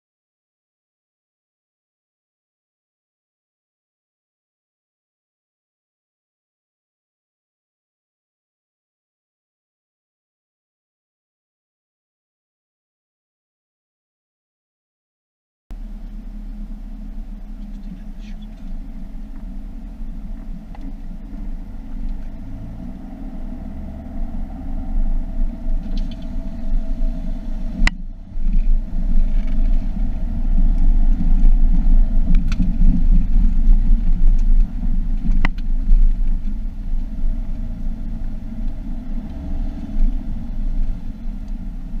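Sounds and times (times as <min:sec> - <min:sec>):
car engine and road rumble: 0:15.7 - 0:42.0.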